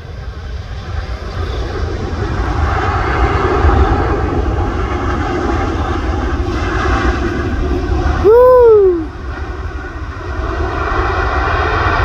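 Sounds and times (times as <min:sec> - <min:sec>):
jet engines rushing: 0:00.0 - 0:12.0.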